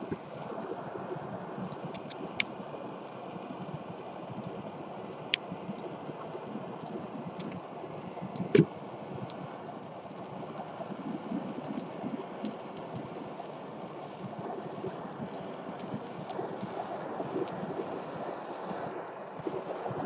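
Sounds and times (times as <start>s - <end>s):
fire crackling: 0.0s - 20.0s.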